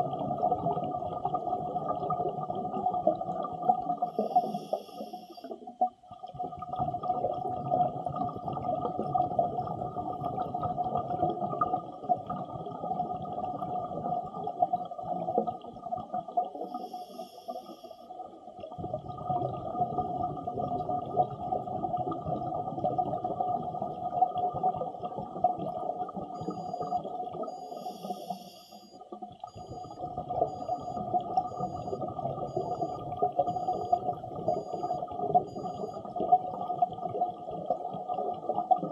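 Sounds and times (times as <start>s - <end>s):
underwater exhaled bubbles: 0.0s - 38.9s
regulator hiss on inhale: 4.1s - 5.5s, 16.7s - 18.1s.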